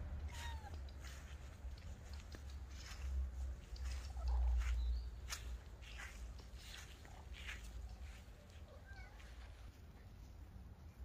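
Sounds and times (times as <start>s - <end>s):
cat meowing: 0.2s - 0.8s.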